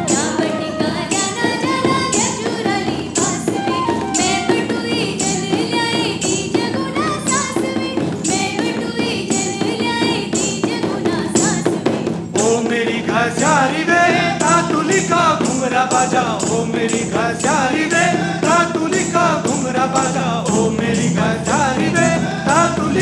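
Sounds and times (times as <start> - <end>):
drums: 0.0 - 23.0
people singing: 0.0 - 23.0.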